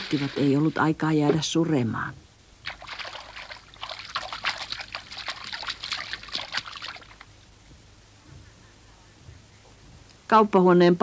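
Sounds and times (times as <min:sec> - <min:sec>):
water splashing in wooden bucket: 0:00.0 - 0:00.7, 0:02.6 - 0:07.3.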